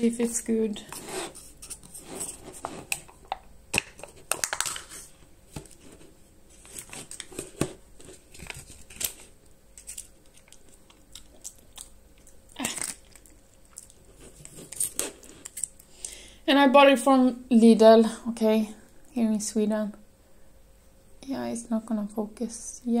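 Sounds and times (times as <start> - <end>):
foil seal peeling and crinkling: 6.6 - 11.9, 12.6 - 15.8.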